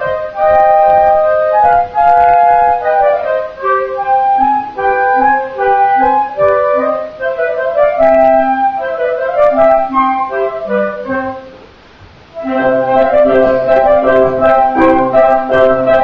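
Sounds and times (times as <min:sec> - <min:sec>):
wind ensemble and piano playing: 0:00.0 - 0:11.6, 0:12.3 - 0:16.0
low piano bass line: 0:12.4 - 0:16.0.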